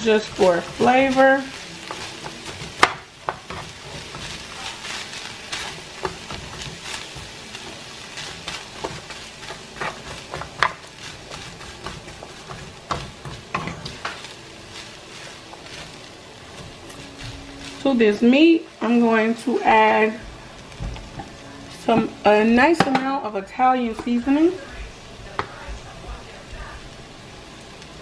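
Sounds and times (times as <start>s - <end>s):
spatula scraping and tapping pan: 0.0s - 18.3s, 23.9s - 24.3s, 25.3s - 25.7s
food sizzling in a frying pan: 0.0s - 28.0s.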